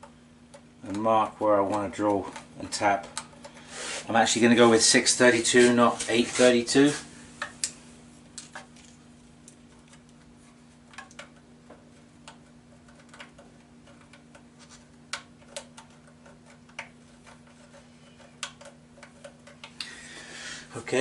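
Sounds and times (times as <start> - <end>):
pencil clicks and taps: 10.9 - 19.9.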